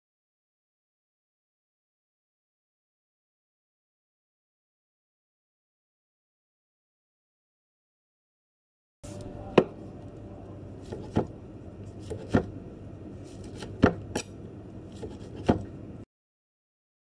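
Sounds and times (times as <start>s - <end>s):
low background hum: 9.0s - 16.1s.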